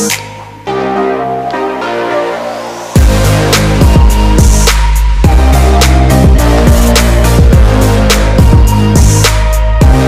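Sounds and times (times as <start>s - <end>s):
electronic music with heavy bass: 0.0s - 10.0s
steady drum beat: 3.0s - 10.0s.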